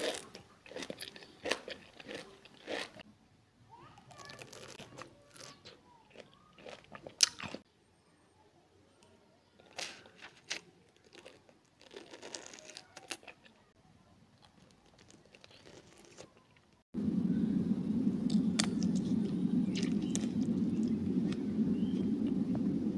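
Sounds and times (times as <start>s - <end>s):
crunching and chewing ice: 0.0s - 3.0s, 4.1s - 7.6s, 9.6s - 13.6s, 14.4s - 16.7s, 19.7s - 21.0s
low droning noise: 17.0s - 22.9s.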